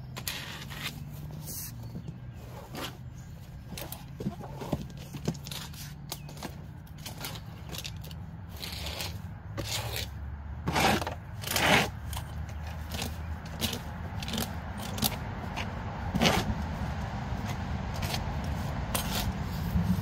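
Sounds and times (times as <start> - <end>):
tool scraping floor litter: 7.2 - 16.5.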